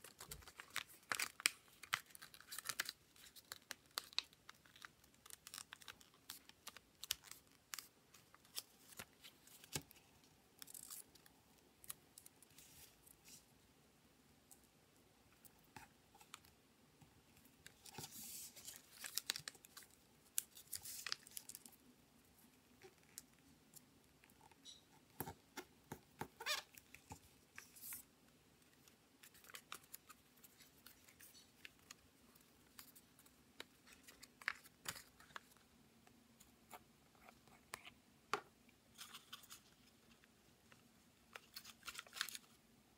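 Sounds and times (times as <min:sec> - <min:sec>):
paper rustling and crinkling: 0:00.0 - 0:10.1, 0:17.6 - 0:21.8, 0:41.3 - 0:42.6.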